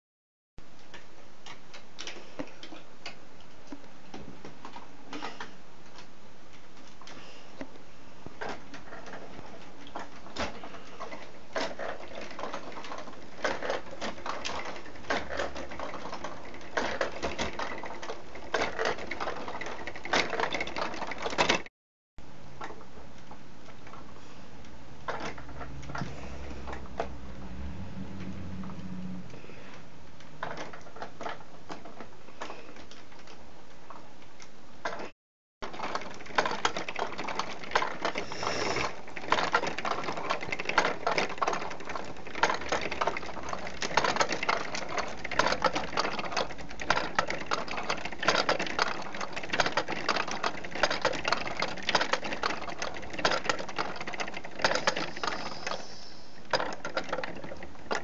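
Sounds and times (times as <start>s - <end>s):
toy gears clicking and rattling: 8.4s - 21.7s, 35.6s - 58.0s.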